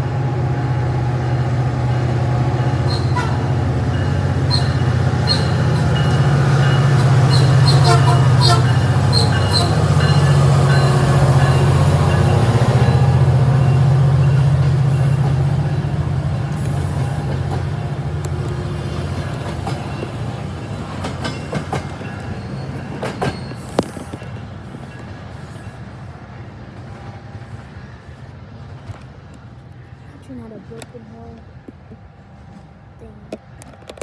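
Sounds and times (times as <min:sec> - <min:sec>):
diesel locomotive drone: 0:00.0 - 0:34.0
train wheel clicks: 0:16.4 - 0:25.1, 0:33.2 - 0:34.0.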